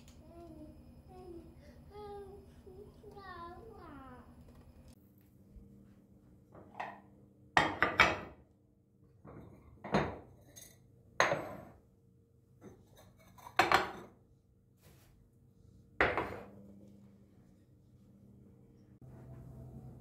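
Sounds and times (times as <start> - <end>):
ceramic bowls knocking: 7.6 - 8.4, 11.2 - 11.7.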